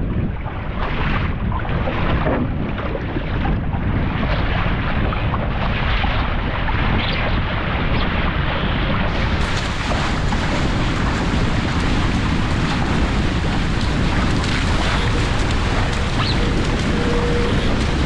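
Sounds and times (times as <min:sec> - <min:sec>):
water rushing past hulls: 0:00.0 - 0:18.0
wind buffeting microphone: 0:00.0 - 0:18.0.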